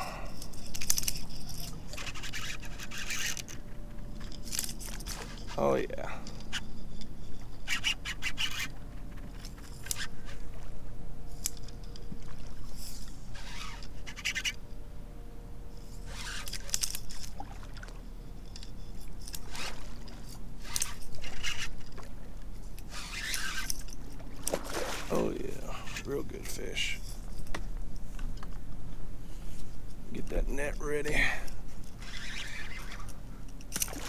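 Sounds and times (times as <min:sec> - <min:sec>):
scrapes against kayak: 0:00.5 - 0:03.6, 0:04.7 - 0:10.6, 0:12.6 - 0:14.6, 0:15.8 - 0:17.3, 0:18.7 - 0:27.5, 0:31.6 - 0:33.2.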